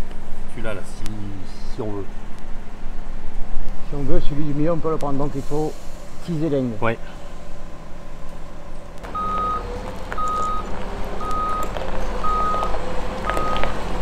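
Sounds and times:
diesel engine humming: 0:00.0 - 0:14.0
reversing alarm beeping: 0:09.1 - 0:13.8.

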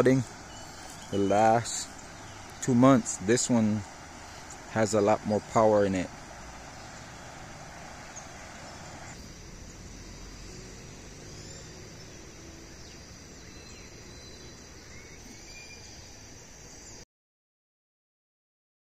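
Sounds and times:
floodwater rushing: 0:00.0 - 0:13.5
high insect drone: 0:00.0 - 0:17.0
short bird chirps: 0:00.4 - 0:02.6.

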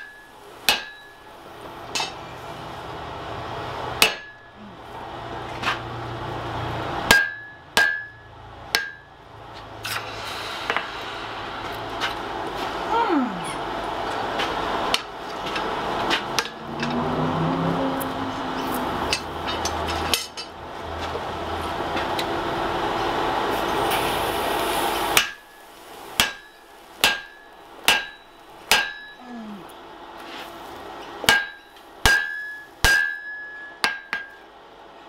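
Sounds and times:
steady rushing noise: 0:09.4 - 0:12.9.

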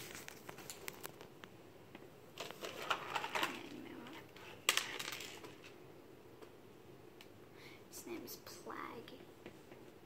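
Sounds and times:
toy packaging rustling and clicking: 0:00.0 - 0:01.4, 0:02.4 - 0:05.8.

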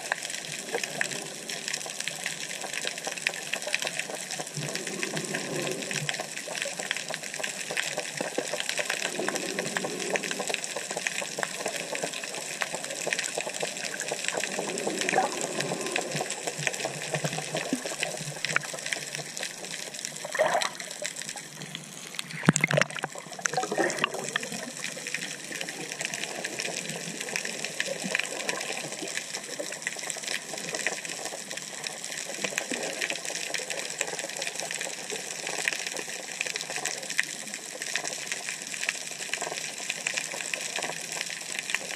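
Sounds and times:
underwater rushing hiss: 0:04.5 - 0:06.3, 0:09.0 - 0:12.0, 0:13.8 - 0:19.3.

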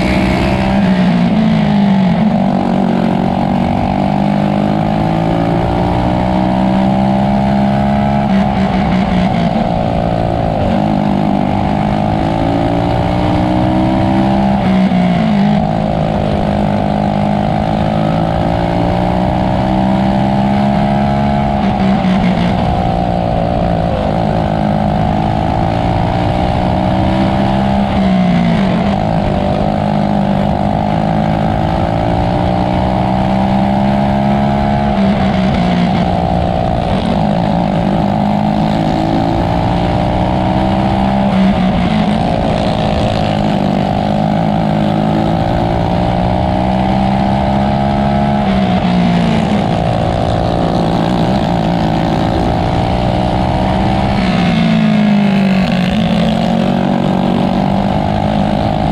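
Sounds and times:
racing kart engine at high revs: 0:00.0 - 0:58.9.

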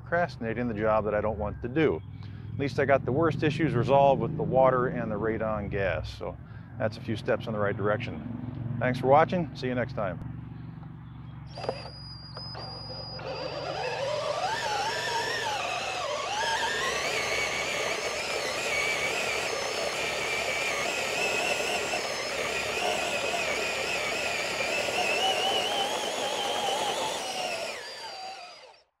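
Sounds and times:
cordless drill motor whine: 0:11.5 - 0:29.0.

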